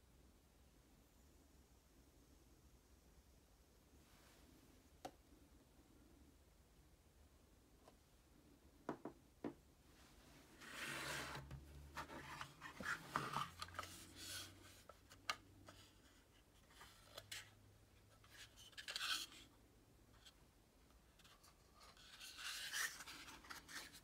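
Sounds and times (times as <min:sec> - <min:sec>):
plastic rubbing and scraping: 0:10.5 - 0:17.6.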